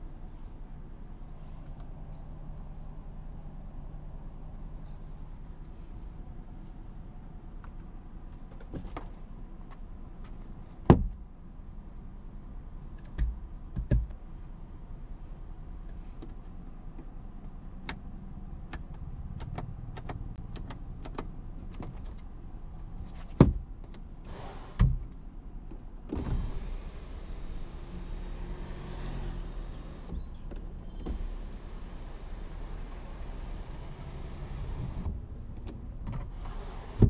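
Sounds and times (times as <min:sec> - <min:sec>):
clicks and knocks in car cabin: 0:13.0 - 0:14.2, 0:18.7 - 0:22.4, 0:23.1 - 0:24.1, 0:35.0 - 0:36.4.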